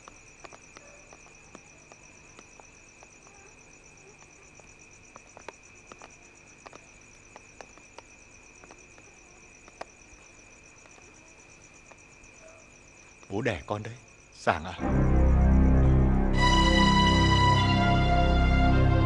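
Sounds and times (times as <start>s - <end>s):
crickets trilling: 0.0s - 18.4s
light clicks: 4.1s - 10.2s.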